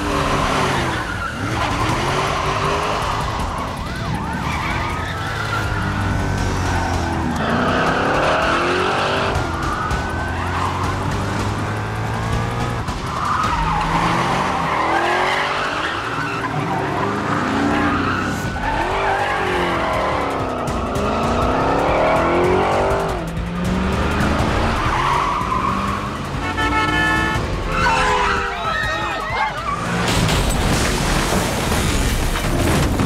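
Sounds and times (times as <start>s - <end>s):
car engines revving: 0.0s - 33.0s
film score music: 0.0s - 33.0s
tyres squealing: 24.6s - 30.1s.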